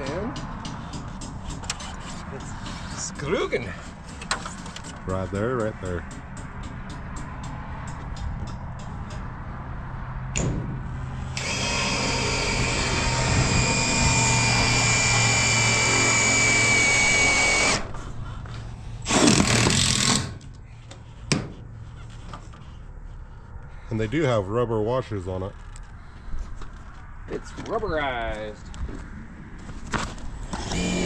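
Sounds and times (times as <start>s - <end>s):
cordless drill whining: 11.4s - 18.0s, 30.5s - 31.0s.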